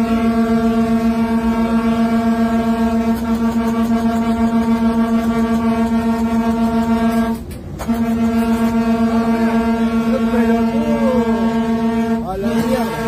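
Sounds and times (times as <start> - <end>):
locomotive horn blast: 0.0 - 13.0
train rumbling: 0.0 - 13.0.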